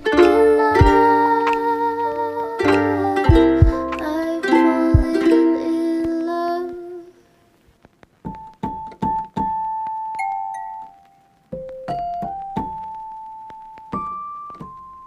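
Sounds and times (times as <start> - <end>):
sustained chords: 0.0 - 5.7.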